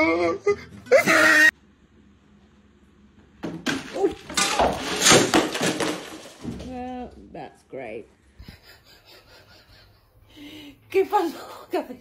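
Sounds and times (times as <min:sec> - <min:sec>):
container crashing to the floor: 0:03.4 - 0:06.9
kibble scattering across floor: 0:03.5 - 0:06.9.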